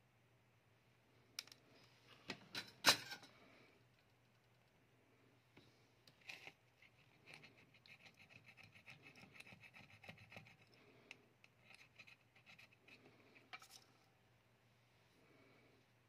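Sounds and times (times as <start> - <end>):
cotton swab scrubbing circuit board: 6.2 - 10.8, 11.4 - 13.8.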